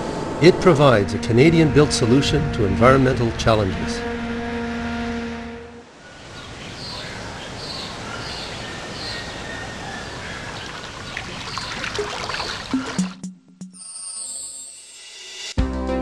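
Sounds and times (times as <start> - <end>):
engine tone: 0.0 - 5.9
flowing water rushing: 6.2 - 13.2.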